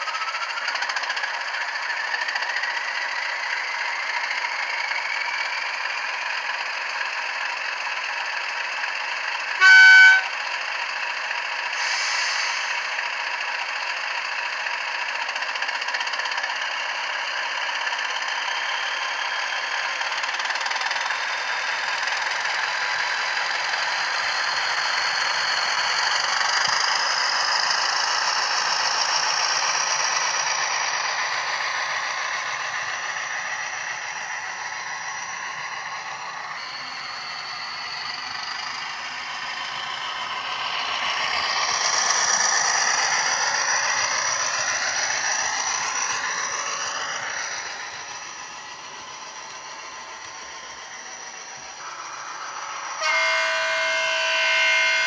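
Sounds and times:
model locomotive engine sound: 0:00.0 - 0:55.0
high whine: 0:33.5 - 0:55.0.

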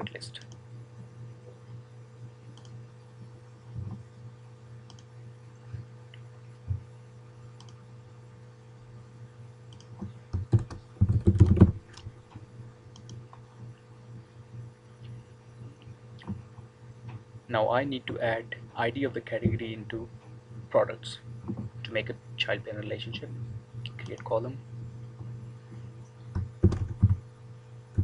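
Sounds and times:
low electrical hum: 0:00.0 - 0:28.0
computer keyboard typing: 0:09.7 - 0:12.1, 0:26.3 - 0:27.2.

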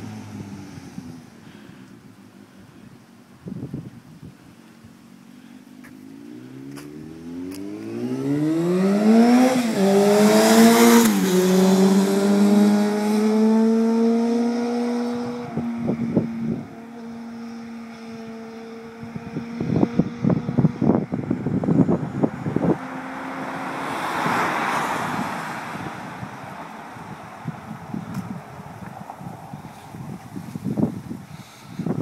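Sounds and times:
wind buffeting microphone: 0:03.4 - 0:04.6, 0:07.6 - 0:17.1, 0:17.8 - 0:32.0
motorcycle engine accelerating: 0:06.0 - 0:24.3.

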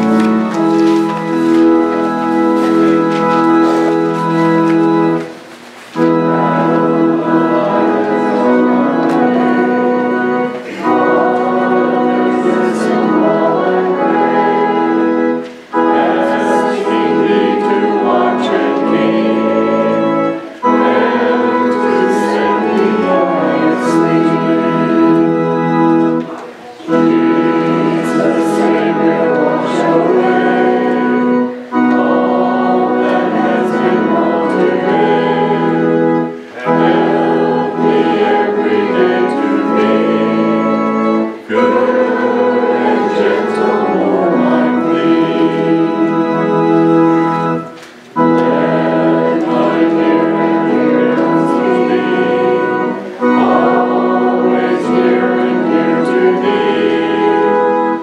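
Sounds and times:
church organ: 0:00.0 - 0:58.0
congregation singing a hymn: 0:00.0 - 0:58.0.

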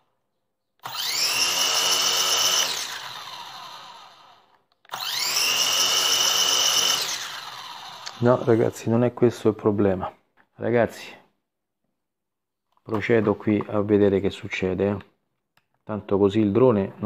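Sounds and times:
drone motors whining: 0:00.8 - 0:08.2.

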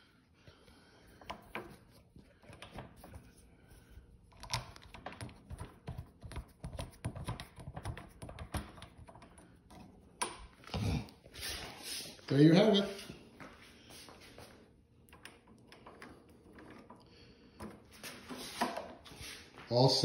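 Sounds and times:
hands tightening mower handle: 0:04.3 - 0:10.7.

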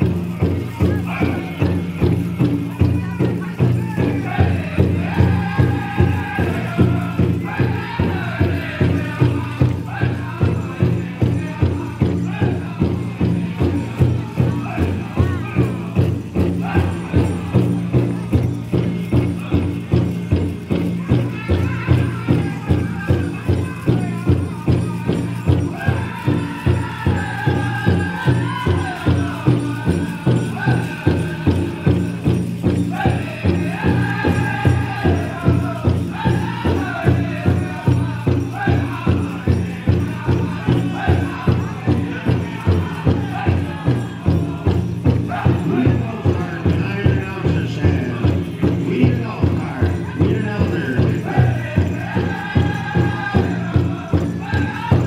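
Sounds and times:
singers chanting in high voices: 0:00.0 - 0:02.2, 0:02.8 - 0:18.5, 0:21.0 - 0:32.1, 0:32.9 - 0:55.0
big drum steady beat: 0:00.0 - 0:55.0.

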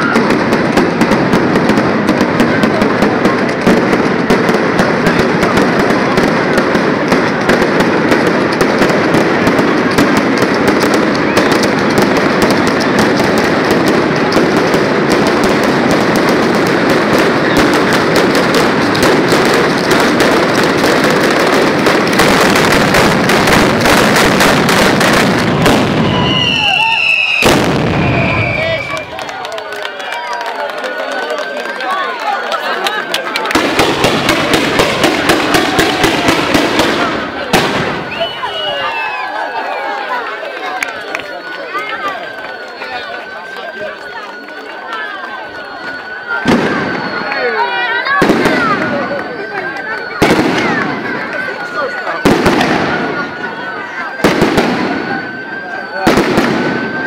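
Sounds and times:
fireworks crackling and popping: 0:00.0 - 0:57.0
high whistling tones: 0:26.0 - 0:29.3, 0:38.0 - 0:39.8, 0:41.0 - 0:52.2, 0:54.8 - 0:57.0.

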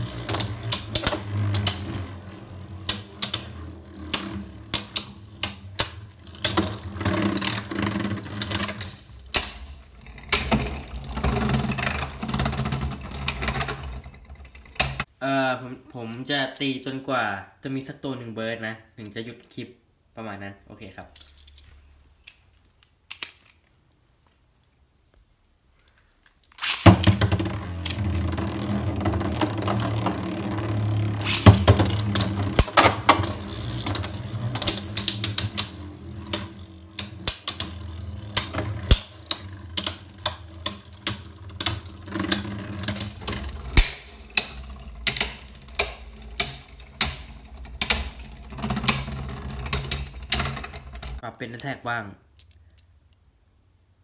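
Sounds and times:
spinning tops clashing clicks: 0:00.0 - 0:10.6, 0:26.5 - 0:51.8
spinning tops whirring: 0:00.0 - 0:15.0, 0:26.6 - 0:51.2.

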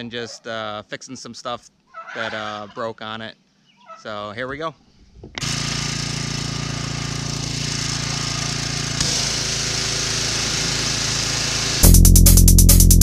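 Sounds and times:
pressure washer hissing: 0:05.4 - 0:12.0.

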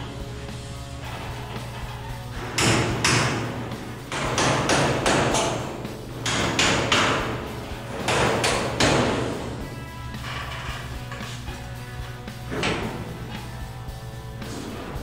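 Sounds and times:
steady low hum: 0:00.0 - 0:15.0
hammer striking metal punch: 0:02.5 - 0:07.4, 0:08.0 - 0:09.4.

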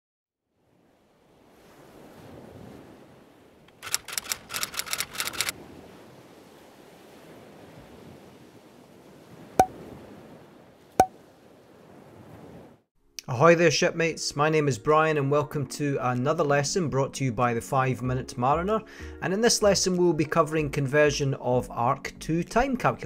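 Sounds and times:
sea waves: 0:00.6 - 0:12.9
rattle of clicks: 0:03.7 - 0:05.5.

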